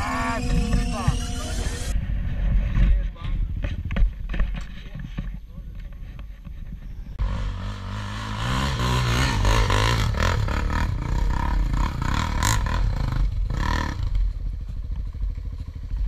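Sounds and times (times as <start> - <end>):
quad engine revving: 7.2 - 14.4.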